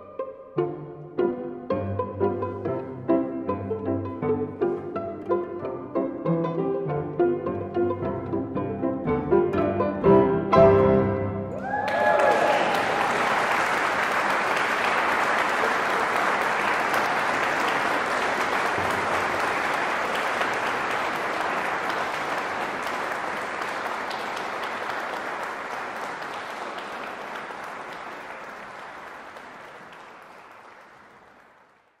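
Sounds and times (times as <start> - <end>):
audience applauding: 11.6 - 32.0.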